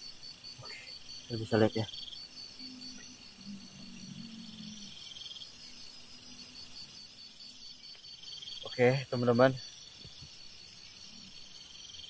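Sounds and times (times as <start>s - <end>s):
crickets chirping: 0.0s - 12.0s
faint low drone: 2.6s - 6.6s.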